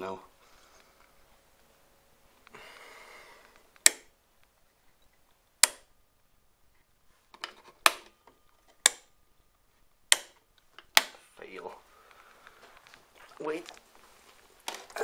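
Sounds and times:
metal toggle switch clicking: 0:03.8 - 0:04.1, 0:05.6 - 0:05.9, 0:08.8 - 0:09.1, 0:10.1 - 0:11.2.

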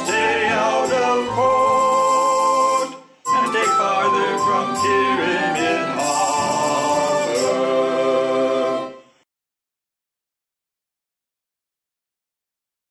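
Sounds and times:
voices singing with instruments: 0:00.0 - 0:09.1.

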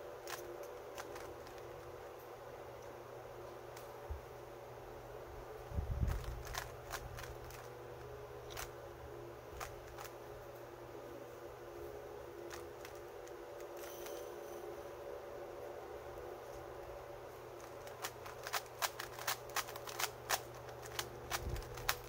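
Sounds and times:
faint steady hum: 0:00.0 - 0:22.0
plastic cube clicks: 0:17.6 - 0:22.0.

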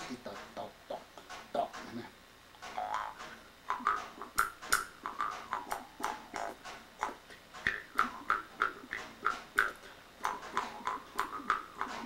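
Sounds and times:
mouth harp twanging: 0:02.6 - 0:12.0.

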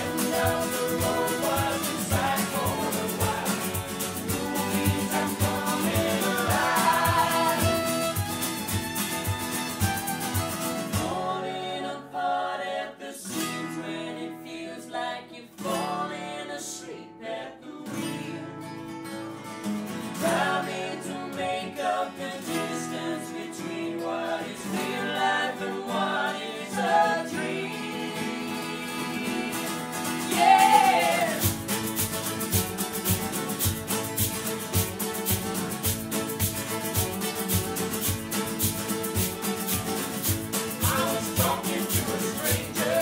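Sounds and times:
voices singing together: 0:00.0 - 0:08.4, 0:10.8 - 0:18.4, 0:20.2 - 0:31.7, 0:39.6 - 0:43.0
acoustic guitars strummed: 0:00.0 - 0:11.8, 0:13.2 - 0:14.4, 0:15.5 - 0:16.4, 0:17.8 - 0:43.0.

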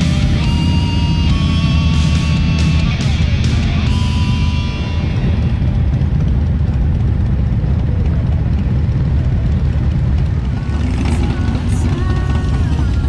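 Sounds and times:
background music: 0:00.0 - 0:07.0, 0:10.4 - 0:13.0
motorcycle engines rumbling: 0:00.0 - 0:13.0.

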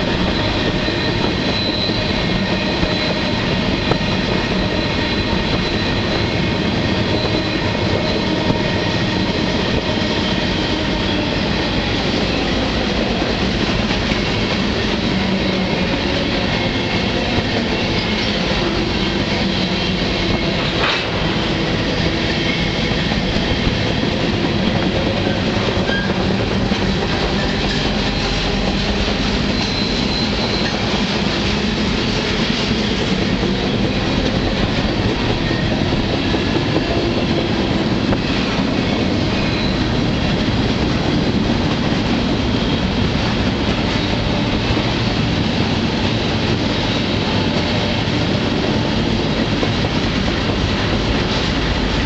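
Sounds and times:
train wheels rumbling on rail: 0:00.0 - 0:52.0
sharp clack: 0:20.6 - 0:21.3.

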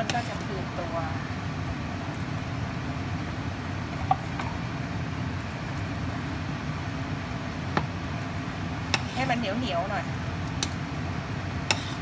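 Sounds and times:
spoon stirring thick sauce: 0:11.7 - 0:12.0.

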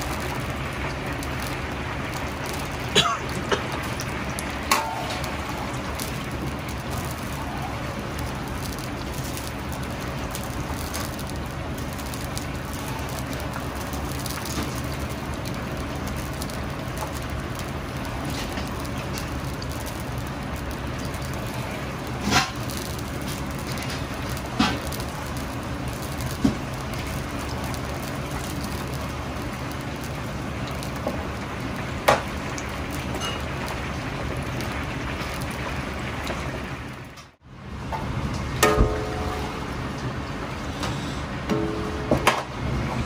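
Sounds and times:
oil bubbling and crackling: 0:00.0 - 0:43.0.

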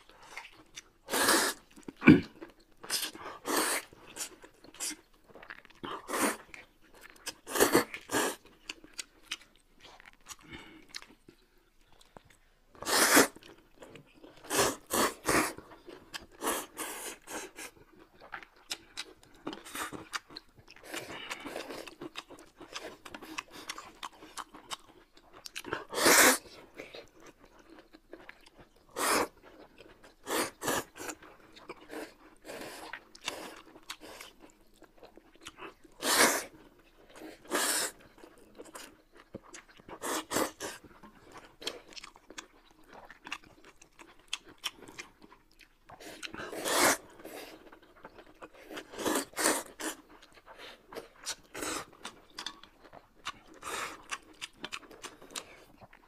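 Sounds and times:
chewing and crunchy bites: 0:00.0 - 0:56.0
slurping noodles: 0:01.0 - 0:02.2, 0:02.9 - 0:05.0, 0:12.8 - 0:13.4, 0:25.8 - 0:26.5, 0:28.9 - 0:29.4, 0:36.0 - 0:36.6, 0:37.2 - 0:38.1, 0:40.0 - 0:40.8, 0:46.0 - 0:47.7, 0:48.6 - 0:50.0.

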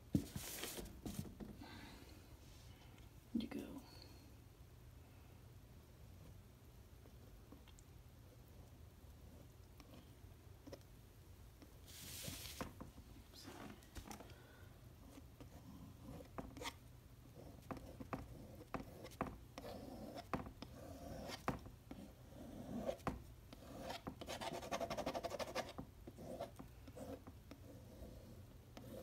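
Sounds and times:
paint scraping on canvas board: 0:00.1 - 0:01.4, 0:11.9 - 0:12.8.

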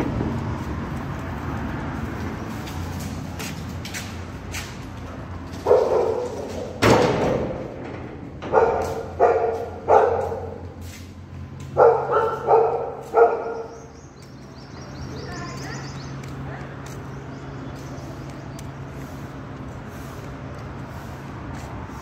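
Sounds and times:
dog barking: 0:05.6 - 0:06.7, 0:08.5 - 0:10.7, 0:11.8 - 0:13.8.

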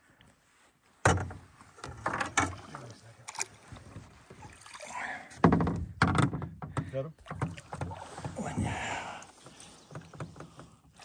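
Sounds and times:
knocks in a canoe: 0:01.0 - 0:02.7, 0:05.3 - 0:10.8
thump in a canoe: 0:01.0 - 0:02.8, 0:05.3 - 0:11.0
fish splashing: 0:04.4 - 0:05.2.

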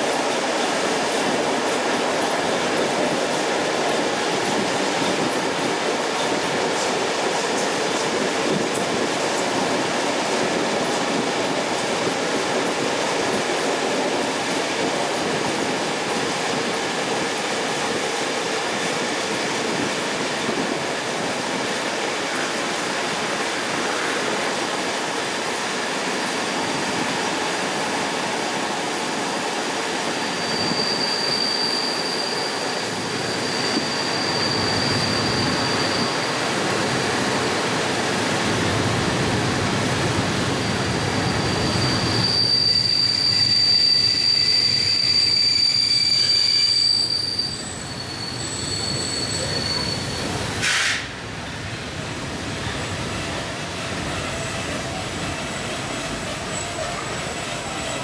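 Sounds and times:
train running on rails: 0:00.0 - 0:58.0
high steady wheel squeal: 0:29.2 - 0:37.4, 0:40.5 - 0:51.0, 0:52.8 - 0:58.0.

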